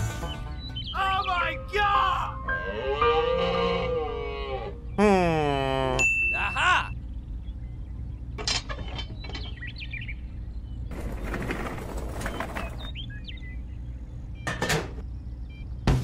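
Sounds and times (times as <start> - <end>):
bird chirps: 0.1 - 1.7, 6.3 - 10.9, 12.1 - 16.0.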